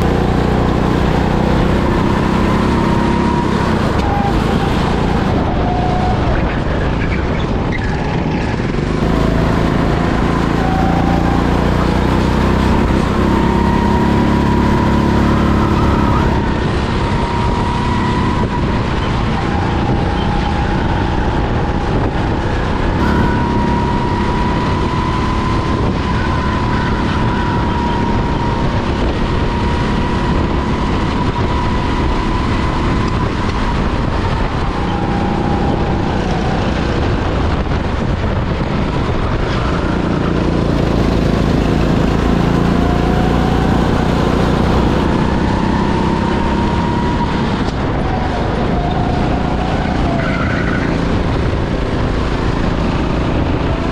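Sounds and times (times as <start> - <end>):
go-kart motor: 0.0 - 53.9
thin whine: 9.0 - 38.3.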